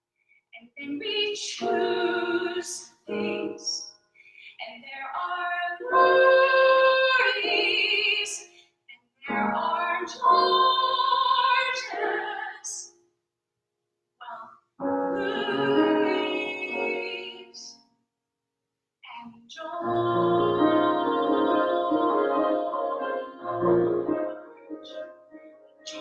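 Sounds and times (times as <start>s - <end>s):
woman singing with vibrato: 0.7s - 3.8s, 4.6s - 8.4s, 9.3s - 12.8s, 15.1s - 17.7s, 19.1s - 24.5s.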